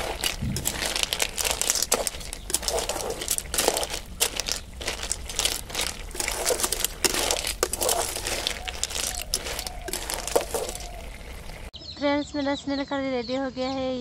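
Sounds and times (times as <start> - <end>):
shells clattering in metal pan: 0.0 - 10.9
ladle scraping pan: 0.0 - 11.6
curry sizzling: 0.0 - 11.8.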